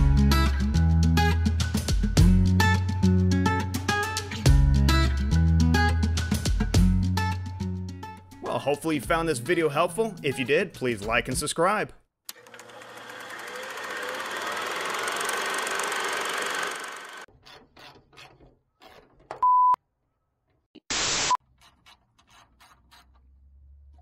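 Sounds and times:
whirring film reel: 0:12.3 - 0:17.3
one-tone beep: 0:19.4 - 0:19.8.

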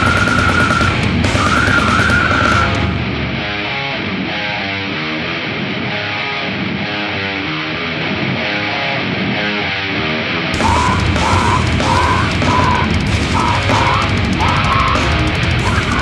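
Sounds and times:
distorted electric guitar riff: 0:00.0 - 0:16.0
metal band with drums: 0:00.0 - 0:16.0.

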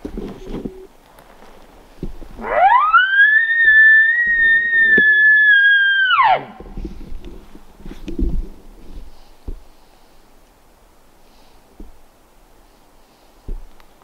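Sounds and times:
elk bugling whistle: 0:02.4 - 0:06.6.

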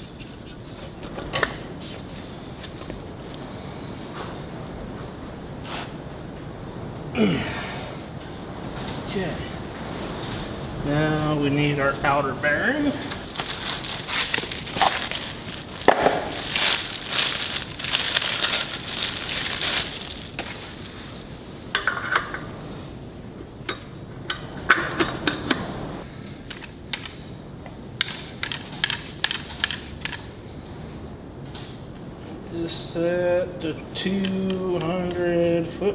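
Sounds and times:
packaging crinkling: 0:13.1 - 0:21.4.

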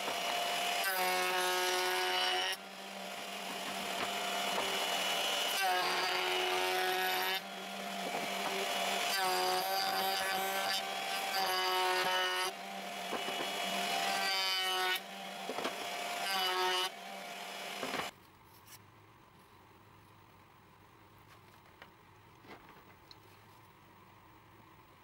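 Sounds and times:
wood router cutting: 0:00.0 - 0:18.1.

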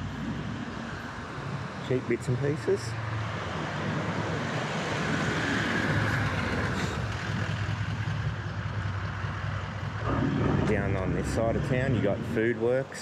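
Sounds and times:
street traffic noise: 0:00.0 - 0:13.0
vehicle engine droning: 0:00.0 - 0:13.0.

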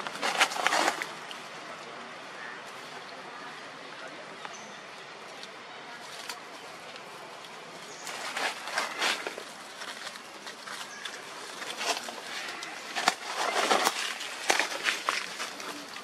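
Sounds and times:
leaves rustling and crackling: 0:00.0 - 0:16.0
steady outdoor hiss: 0:00.0 - 0:16.0.

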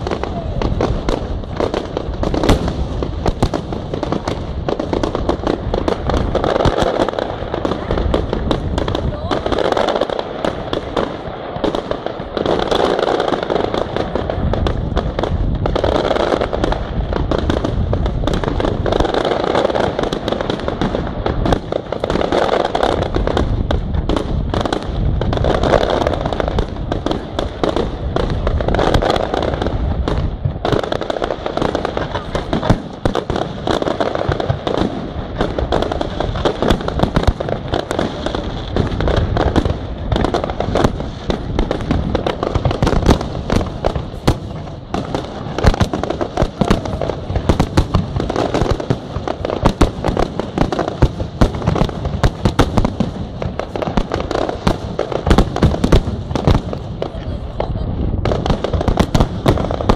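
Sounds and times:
fireworks bursting and crackling: 0:00.0 - 0:59.9.

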